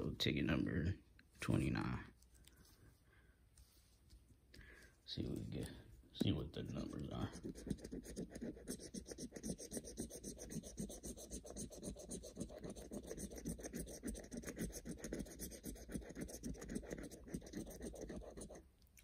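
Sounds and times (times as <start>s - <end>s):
scraping lottery ticket coating: 6.7s - 18.6s.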